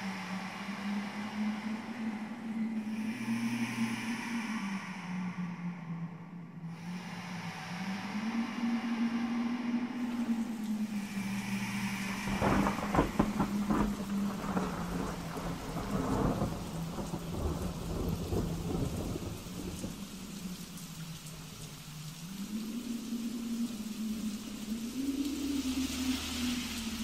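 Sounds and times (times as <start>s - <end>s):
rain: 0.0s - 27.0s
thunder claps: 12.3s - 20.0s.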